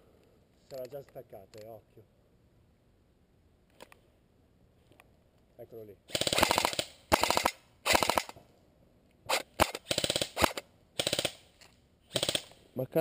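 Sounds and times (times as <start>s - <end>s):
airsoft gun firing bursts: 6.1s - 8.4s, 9.3s - 11.5s, 12.1s - 12.6s.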